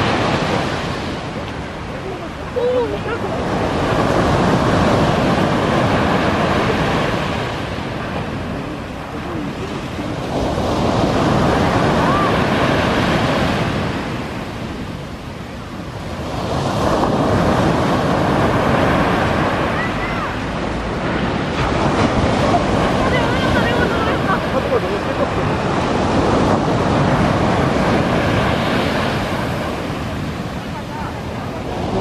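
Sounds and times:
sea waves breaking on a beach: 0:00.0 - 0:32.0.

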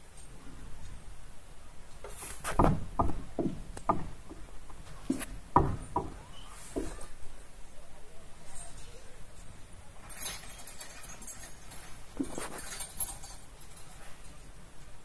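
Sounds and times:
chairlift knocks and clunks: 0:02.0 - 0:07.1.

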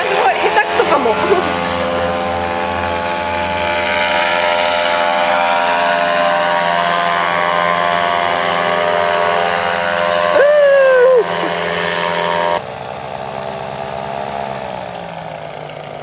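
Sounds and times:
high held tone: 0:00.0 - 0:12.6
paramotor engine droning: 0:00.0 - 0:16.0.

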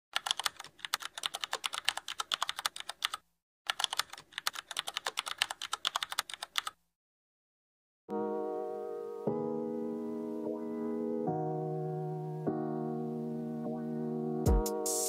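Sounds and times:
rapid keyboard typing: 0:00.1 - 0:06.8.

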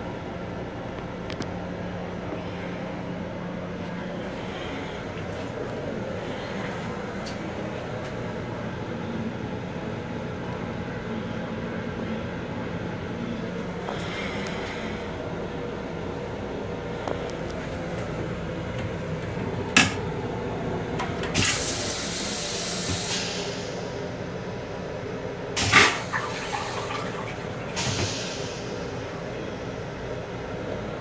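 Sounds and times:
railcar rumble: 0:00.0 - 0:31.0
toilet rinse water hissing: 0:21.4 - 0:23.8, 0:25.6 - 0:29.1.

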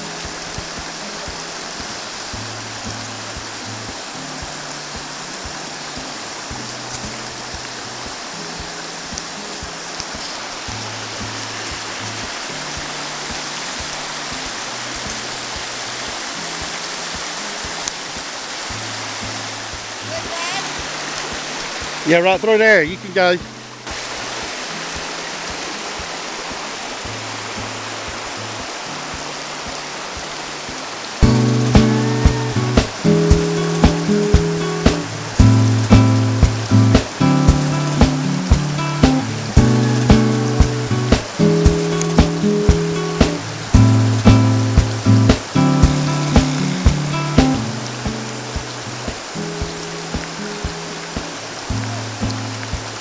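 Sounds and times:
river water rushing over rocks: 0:00.0 - 0:53.0
music with bass and beat: 0:31.2 - 0:53.0.

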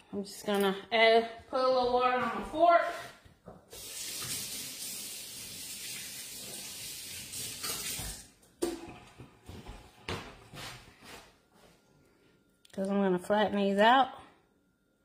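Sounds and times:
faucet running: 0:03.7 - 0:08.3.

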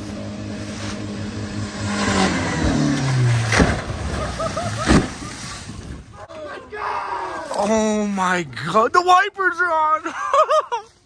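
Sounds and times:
pickup truck engine revving: 0:00.0 - 0:05.5
truck crashing onto ground: 0:02.6 - 0:06.1.

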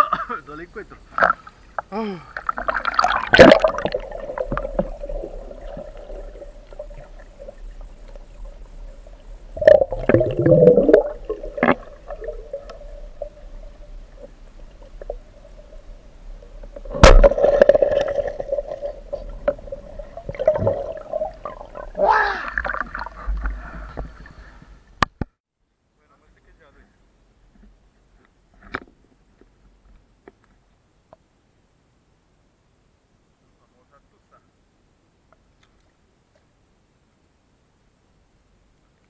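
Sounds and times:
faint hum: 0:00.0 - 0:25.1
underwater gurgling and bubbling: 0:02.4 - 0:24.3.

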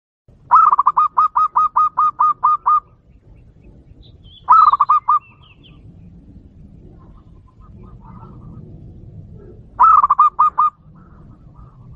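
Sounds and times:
dove song from loudspeaker: 0:00.4 - 0:05.8, 0:09.4 - 0:11.9
faint bird chirps: 0:00.5 - 0:06.0.

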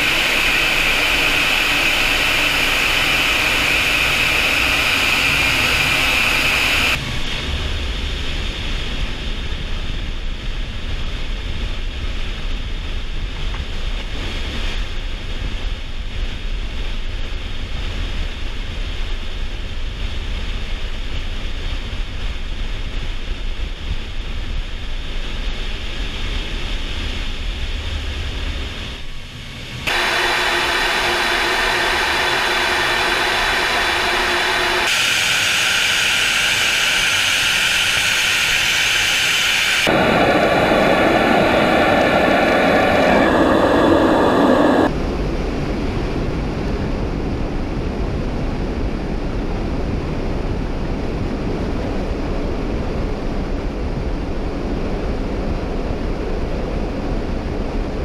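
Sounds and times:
jet noise with whine: 0:00.0 - 0:58.0
air rushing deep rumble: 0:36.0 - 0:45.6.

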